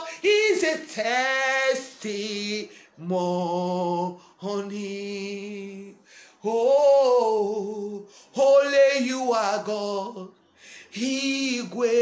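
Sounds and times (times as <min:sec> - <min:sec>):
woman singing unaccompanied: 0:11.0 - 0:12.0.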